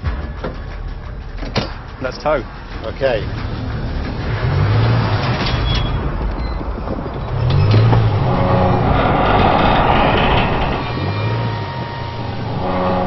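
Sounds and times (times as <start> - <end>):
railway carriages rolling on track: 0.0 - 13.0
car engine pulling under load: 3.3 - 13.0.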